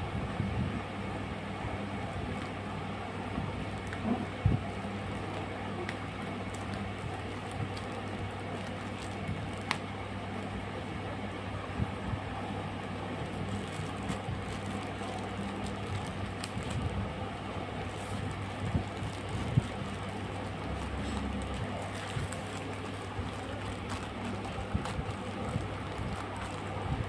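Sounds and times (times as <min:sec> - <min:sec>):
steady low hum: 0:00.0 - 0:27.0
plastic bag crinkling: 0:04.7 - 0:09.9, 0:13.2 - 0:17.0, 0:17.8 - 0:27.0.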